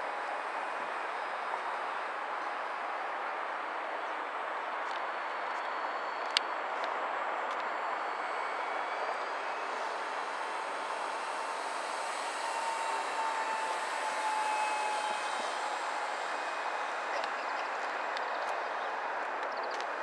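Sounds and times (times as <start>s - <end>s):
model plane motor whining: 7.6s - 20.0s.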